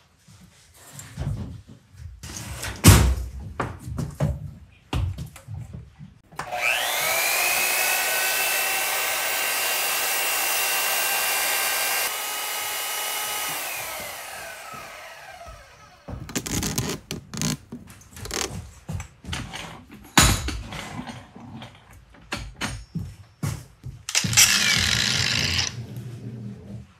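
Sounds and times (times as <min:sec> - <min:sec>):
power tool whining and hissing: 0:06.3 - 0:17.6, 0:24.1 - 0:25.8.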